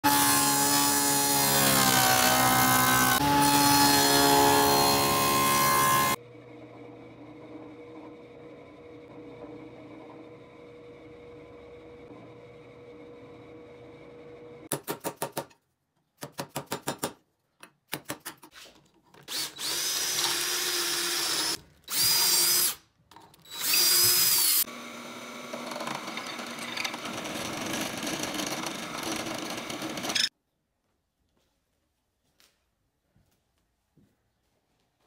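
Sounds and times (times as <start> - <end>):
drill press boring into wood: 19.3 - 22.8, 23.5 - 30.3.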